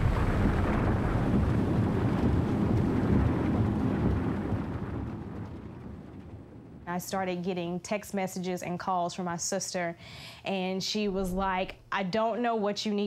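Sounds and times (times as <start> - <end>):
storm wind and heavy rain: 0.0 - 7.2.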